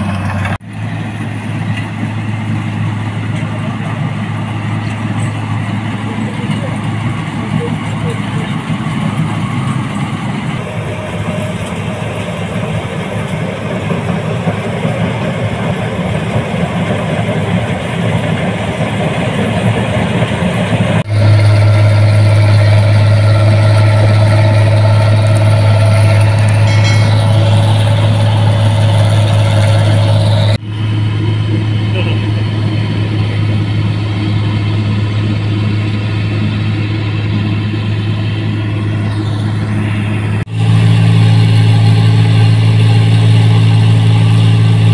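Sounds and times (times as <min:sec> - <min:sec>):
combine harvester running: 0:00.0 - 0:44.9
strong steady low hum: 0:21.0 - 0:44.9.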